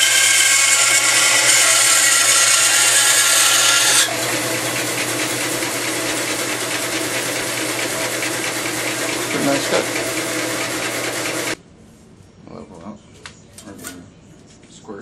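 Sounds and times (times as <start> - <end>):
bandsaw cutting log: 0.0 - 11.6
bandsaw motor hum: 0.0 - 11.6.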